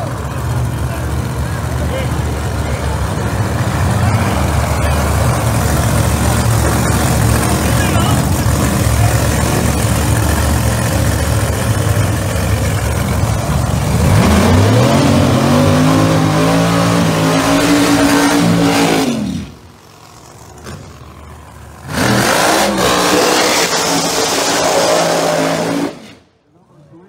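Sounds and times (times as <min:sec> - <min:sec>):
racing car engine revving: 0:00.0 - 0:26.3.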